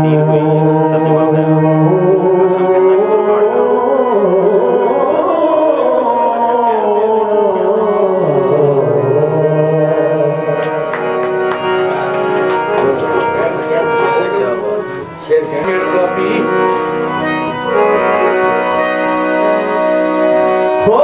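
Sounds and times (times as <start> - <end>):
man singing: 0.0 - 10.9, 13.3 - 18.1, 20.8 - 21.0
harmonium chords: 0.0 - 21.0.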